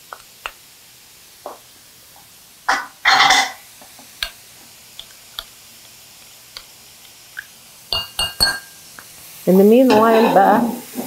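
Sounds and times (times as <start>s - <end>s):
bowls and utensils clicking: 7.9s - 8.8s.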